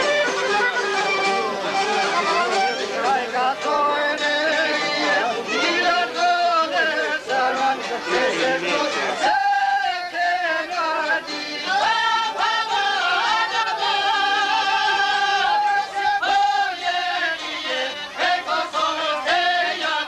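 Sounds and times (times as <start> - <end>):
plucked lutes: 0.0 - 9.2
man singing folk song: 1.9 - 20.0.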